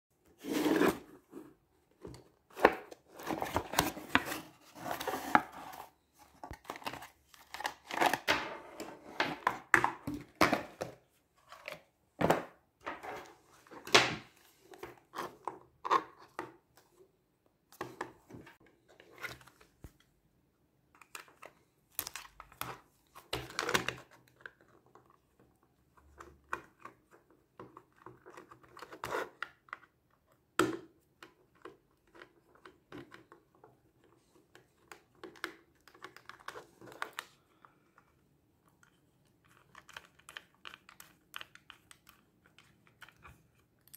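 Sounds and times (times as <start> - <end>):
rustles and scrapes of handling: 0.2 - 7.7.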